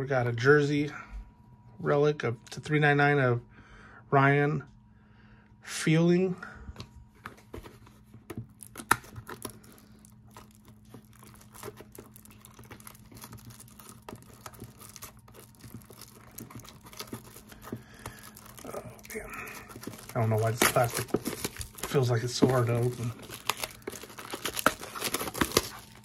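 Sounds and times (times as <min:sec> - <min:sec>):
plastic shrink-wrap crackling: 0:08.4 - 0:26.0.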